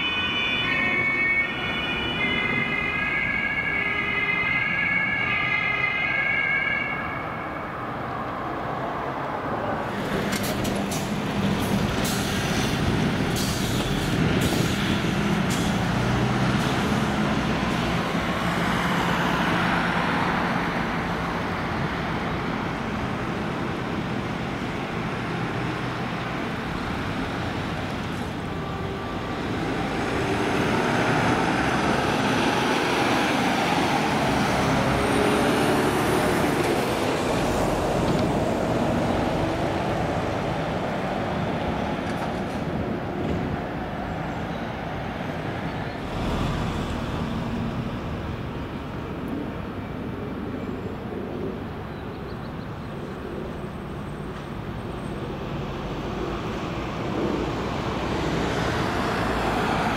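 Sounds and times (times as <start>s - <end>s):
passing traffic: 0.0s - 59.9s
van driving past: 46.0s - 49.0s.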